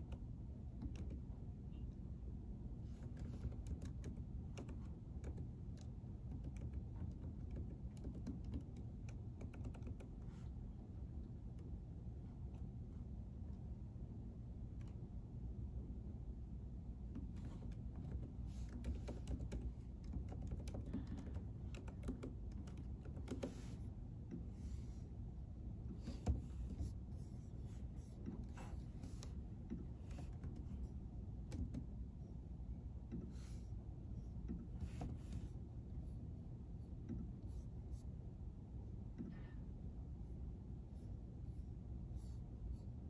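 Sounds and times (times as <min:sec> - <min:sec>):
low room hum: 0:00.0 - 0:43.0
computer keyboard typing: 0:00.8 - 0:01.3, 0:02.9 - 0:10.3, 0:17.1 - 0:23.8.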